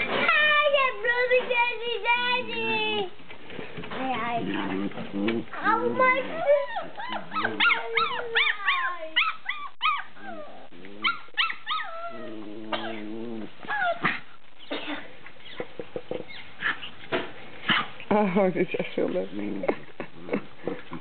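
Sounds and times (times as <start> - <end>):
puppies yipping and squealing: 6.0 - 12.3, 15.4 - 17.1.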